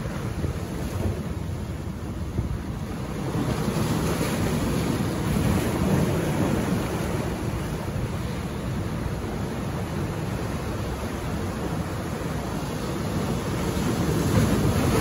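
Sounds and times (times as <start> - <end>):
surf breaking over rocks: 11.2 - 15.0.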